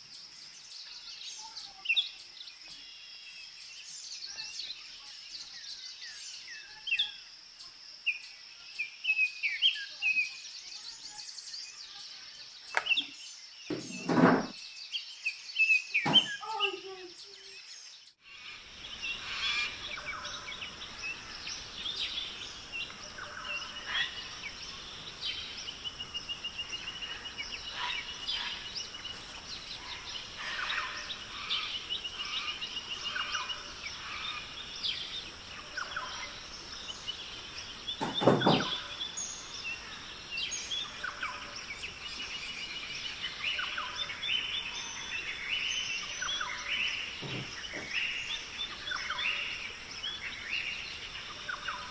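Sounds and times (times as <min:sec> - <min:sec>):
small birds chirping and trilling: 0:00.0 - 0:51.9
short thump: 0:13.7 - 0:14.5
steady high hiss: 0:16.4 - 0:51.9.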